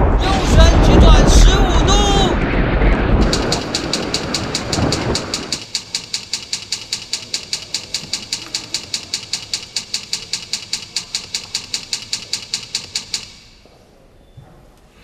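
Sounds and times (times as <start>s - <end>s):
rapid mechanical ticking: 3.2s - 13.6s.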